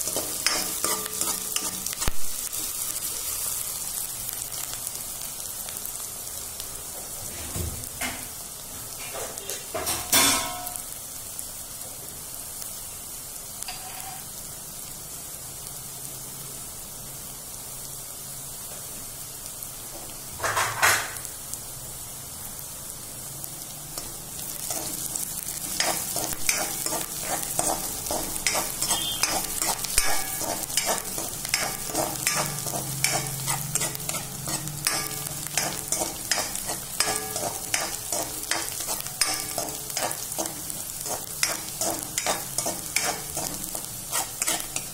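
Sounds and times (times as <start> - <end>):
metal spatula scraping pan: 0.0 - 2.7, 13.7 - 14.2, 24.6 - 44.9
vegetables sizzling in hot oil: 0.0 - 44.9.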